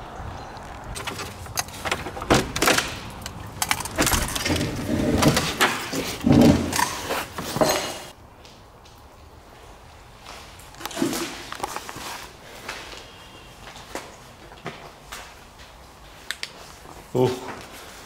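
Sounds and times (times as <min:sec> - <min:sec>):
wooden door rattling and scraping: 0:00.8 - 0:08.1.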